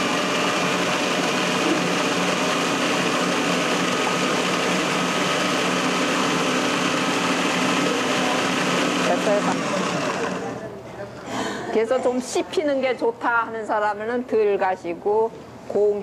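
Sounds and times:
food processor motor running: 0.0 - 10.6.

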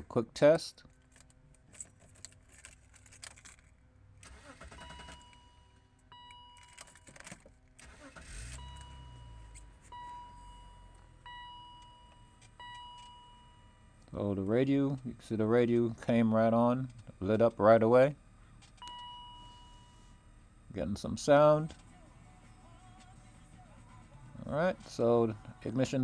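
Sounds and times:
keys jangling in ignition: 0.9 - 5.5, 6.3 - 9.9, 11.8 - 13.4
car engine starting: 1.0 - 26.0
electronic beep tone: 8.6 - 13.9.

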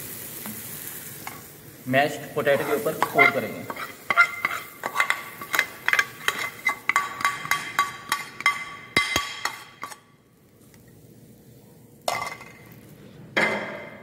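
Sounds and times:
ladle scraping a pan: 2.5 - 8.7, 9.4 - 10.1.

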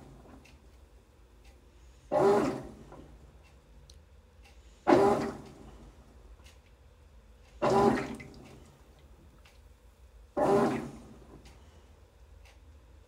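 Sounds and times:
washing machine water churning: 2.1 - 3.2, 4.9 - 6.0, 7.6 - 9.2, 10.4 - 11.4.

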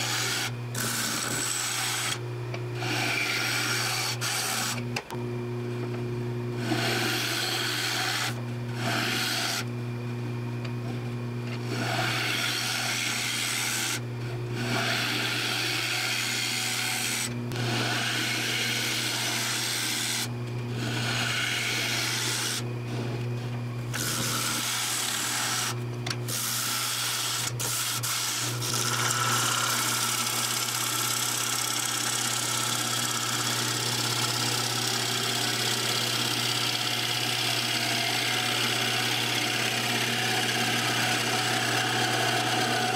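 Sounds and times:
gouge scraping wood on lathe: 0.0 - 2.2, 2.8 - 4.8, 6.6 - 9.6, 14.6 - 22.6, 24.0 - 25.8, 26.4 - 42.9
lathe motor humming: 0.0 - 5.5, 11.5 - 23.2, 23.8 - 42.9.

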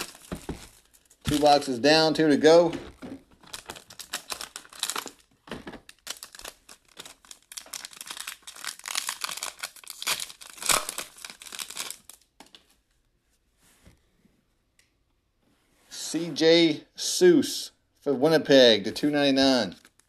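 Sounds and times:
foil wrapper crinkling and tearing: 0.0 - 1.9, 3.3 - 5.3, 5.9 - 12.3, 19.8 - 20.0.

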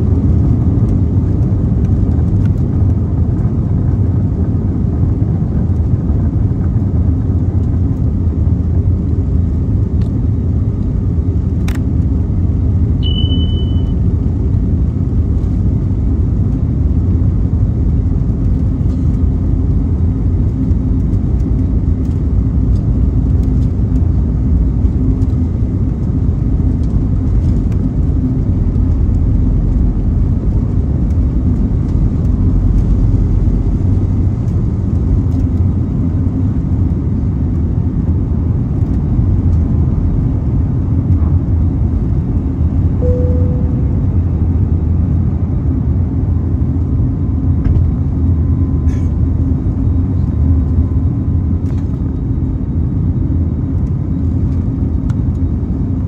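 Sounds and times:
airplane cabin engine rumble: 0.0 - 56.0
steady hum: 0.0 - 56.0
short tone: 13.0 - 14.0, 43.0 - 44.1.

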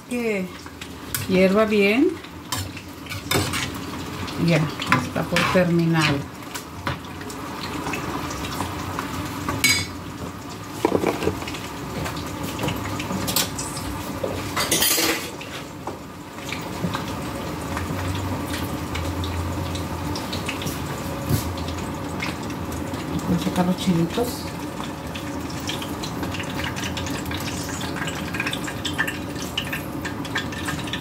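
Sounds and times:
broth simmering in skillet: 0.0 - 31.0
utensil knocking against pan: 10.8 - 11.4.

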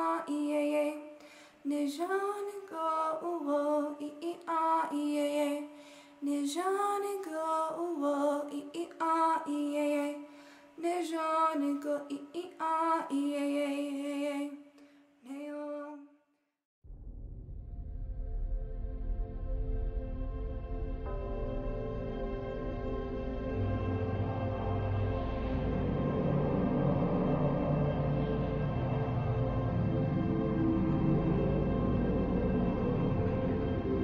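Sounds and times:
woman singing slow song: 0.0 - 16.1.

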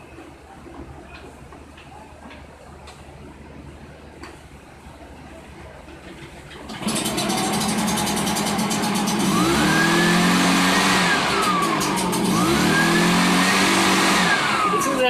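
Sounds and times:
leaf blower engine revving: 6.7 - 15.0.

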